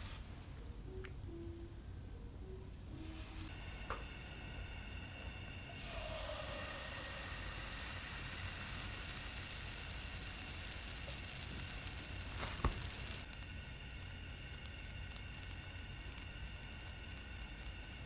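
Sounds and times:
batter sizzling in frying pan: 5.7 - 18.0
crackles: 5.7 - 18.0.

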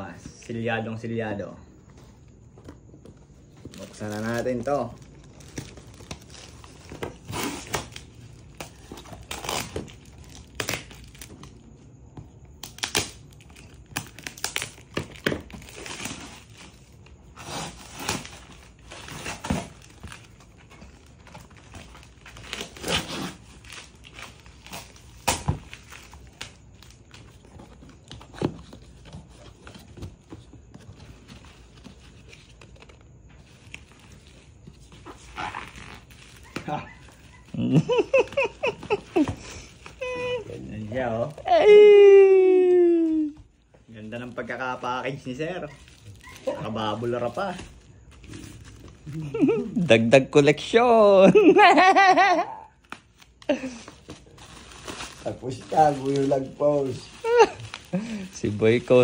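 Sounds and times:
cardboard scraping and ripping: 3.7 - 11.3, 14.0 - 39.1
scissors cutting packing tape: 9.0 - 11.2.

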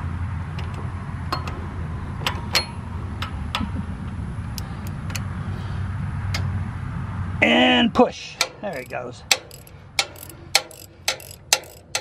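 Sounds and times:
low hum: 0.0 - 7.4
socket wrench clicking: 8.4 - 12.0.

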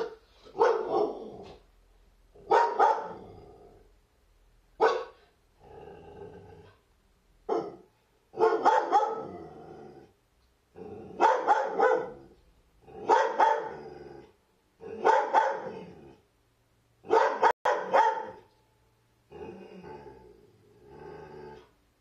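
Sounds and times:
dog barking: 0.0 - 1.6, 2.4 - 3.3, 4.8 - 5.3, 7.5 - 9.4, 11.2 - 12.3, 13.0 - 13.8, 14.9 - 16.0, 17.0 - 18.5.

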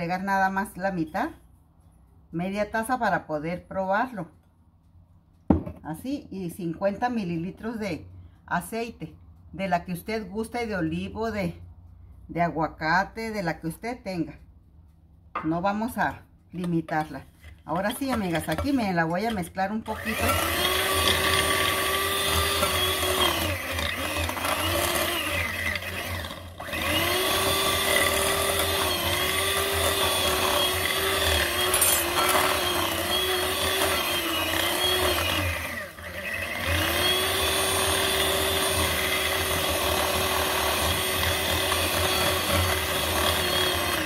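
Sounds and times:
electric hand mixer whining: 19.8 - 44.0.

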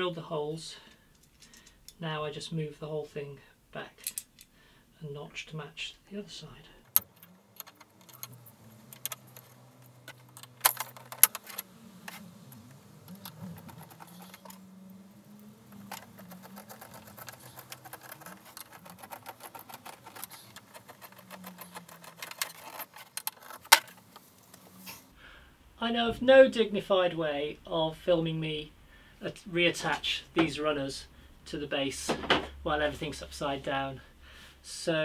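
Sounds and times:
metallic clicks and clinks: 4.0 - 4.5, 6.8 - 24.0.

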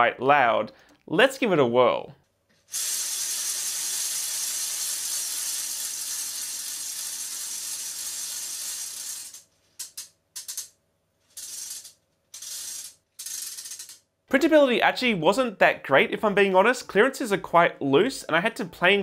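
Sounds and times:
ratchet noisemaker rattling: 2.7 - 14.1.

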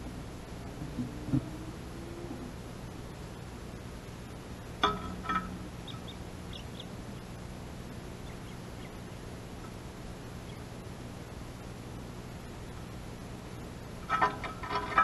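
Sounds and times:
small birds chirping: 3.1 - 3.8, 5.7 - 11.0
loud bird calls: 5.3 - 7.4, 8.1 - 9.8, 10.4 - 10.8.

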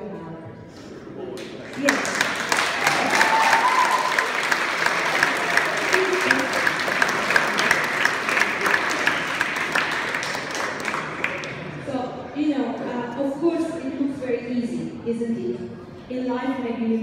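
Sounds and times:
audience applauding: 1.4 - 11.8.

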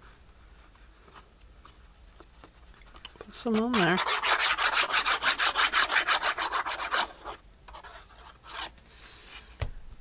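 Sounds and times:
glue bottle tip rubbing on paper: 3.5 - 8.7.

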